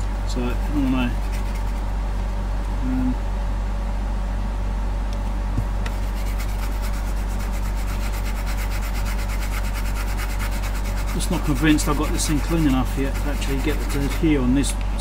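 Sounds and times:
steady low hum: 0:00.0 - 0:15.0
toothbrush scrubbing: 0:00.5 - 0:01.9, 0:05.9 - 0:14.4.

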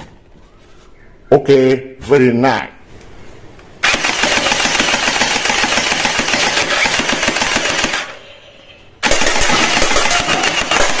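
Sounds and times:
toy gun rapid rattle: 0:03.8 - 0:08.2, 0:09.0 - 0:11.0.

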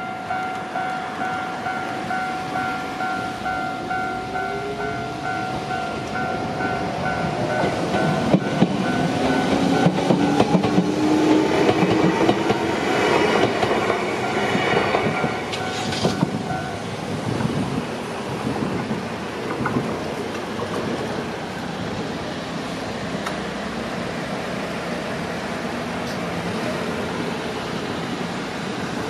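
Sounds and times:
level crossing bell ringing: 0:00.0 - 0:09.6
train whine rising in pitch: 0:00.0 - 0:17.2
road noise: 0:00.0 - 0:29.0
train wheels clacking: 0:00.3 - 0:16.9.

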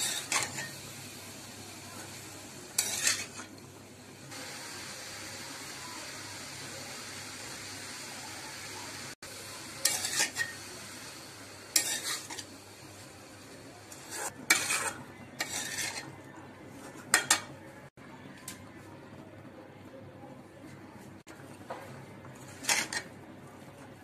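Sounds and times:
spatula scraping metal wok: 0:00.0 - 0:01.0, 0:02.7 - 0:03.6, 0:09.8 - 0:10.6, 0:11.7 - 0:12.5, 0:13.8 - 0:17.6, 0:22.4 - 0:23.2
vegetables sizzling: 0:00.0 - 0:16.1, 0:22.4 - 0:23.1.

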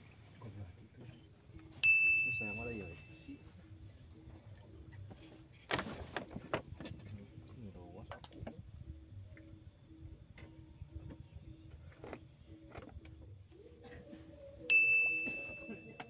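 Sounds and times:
high bell-like ring: 0:01.8 - 0:03.4, 0:14.7 - 0:16.0.

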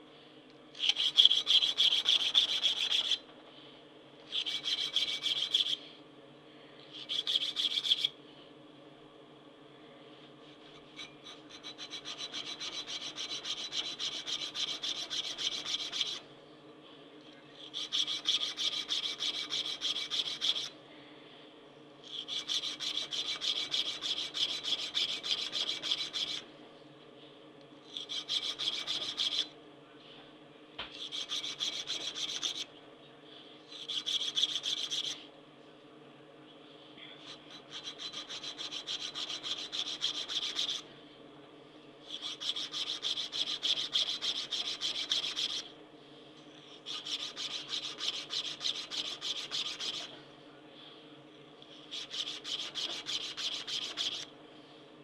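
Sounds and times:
hand file rasping on steel: 0:00.8 - 0:03.2, 0:04.3 - 0:05.8, 0:11.0 - 0:16.2, 0:17.8 - 0:20.7, 0:22.1 - 0:26.4, 0:28.0 - 0:29.5, 0:31.1 - 0:32.6, 0:37.7 - 0:40.8, 0:42.1 - 0:45.6, 0:46.9 - 0:50.1, 0:51.9 - 0:54.2.

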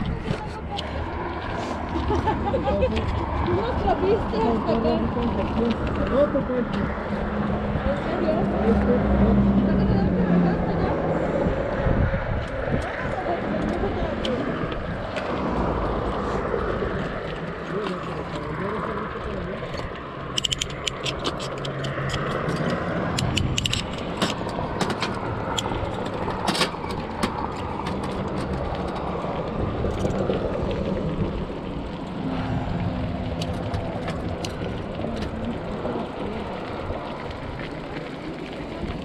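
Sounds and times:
bike rattling clicks over bumps: 0:00.0 - 0:09.0, 0:12.3 - 0:39.0
bicycle tyre and wind noise: 0:00.0 - 0:39.0.

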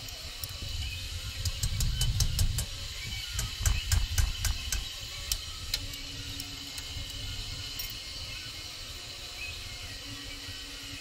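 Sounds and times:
sharp irregular clicks: 0:01.4 - 0:07.2.

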